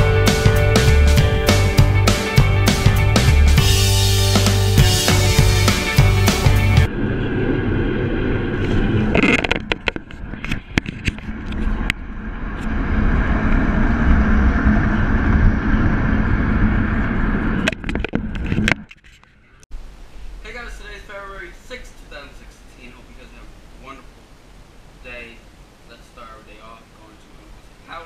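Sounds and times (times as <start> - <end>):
road and wind noise in car: 6.9 - 18.9.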